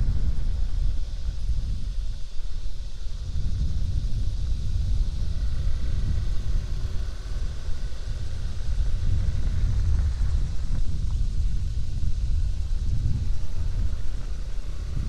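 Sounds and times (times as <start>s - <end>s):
motorcycle engine rumble: 0.0s - 15.0s
wind buffeting microphone: 0.0s - 15.0s
tyres on rough road: 4.2s - 15.0s.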